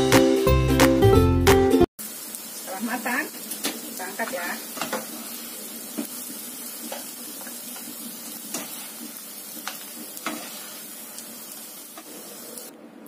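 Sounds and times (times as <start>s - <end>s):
sausage sizzling in oil: 2.0s - 12.7s
spatula scraping a pan: 6.8s - 11.2s.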